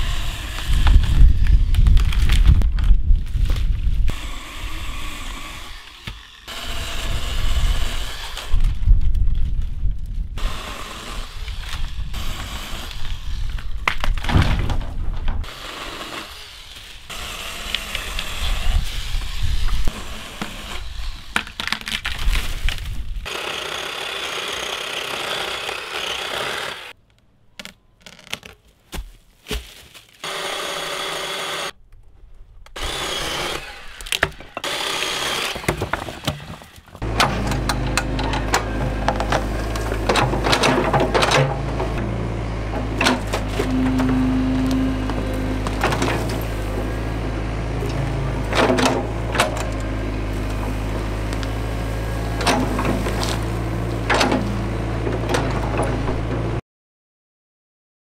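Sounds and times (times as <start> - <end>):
battery chainsaw cutting wood: 0.0 - 2.4, 4.1 - 8.7, 10.4 - 13.6, 15.4 - 21.5, 23.2 - 27.0, 30.2 - 31.8, 32.8 - 42.4
wood knocking and cracking: 13.5 - 15.5
excavator engine hum: 37.0 - 56.6.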